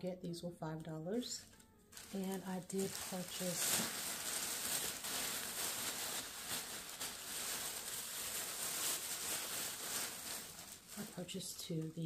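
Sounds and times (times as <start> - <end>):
plastic bag rustling: 1.3 - 12.0.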